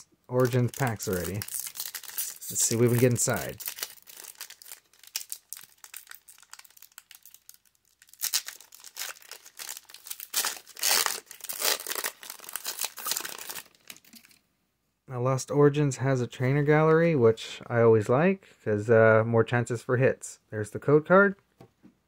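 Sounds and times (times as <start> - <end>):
foil wrapper crinkling and tearing: 0.3 - 14.4.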